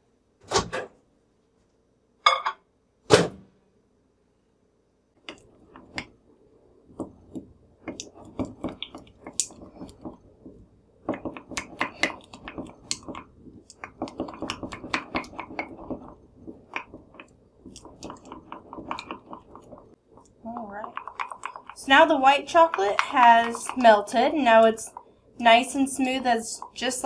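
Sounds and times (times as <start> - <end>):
spatula scraping glass bowl: 20.8 - 25.0.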